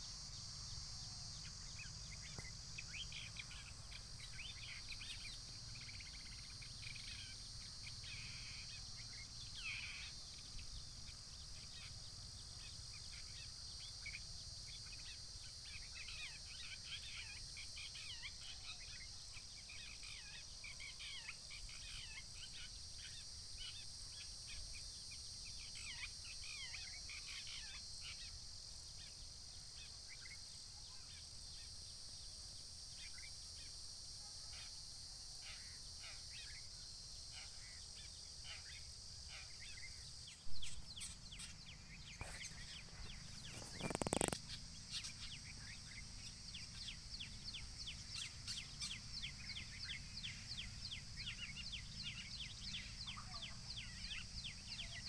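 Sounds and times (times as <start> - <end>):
birds chirping: 0.0 - 24.7, 37.3 - 55.0
high-pitched insect drone: 0.0 - 55.0.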